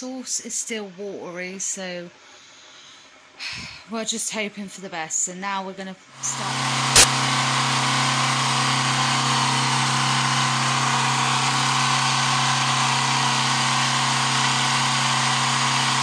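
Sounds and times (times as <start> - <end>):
blender running: 6.2 - 16.0.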